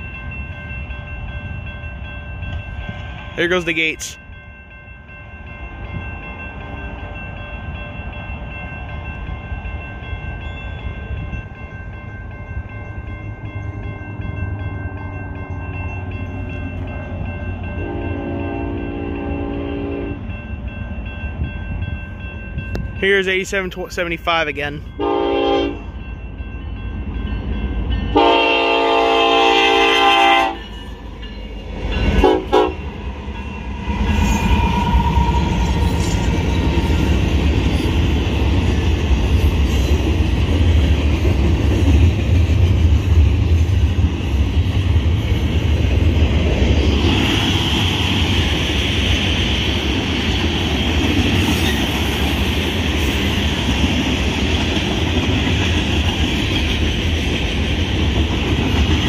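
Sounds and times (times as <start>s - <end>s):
freight train rumbling past: 0.0s - 59.0s
locomotive air horn blasts: 17.8s - 20.2s, 25.0s - 25.8s, 28.2s - 30.6s, 32.2s - 32.8s.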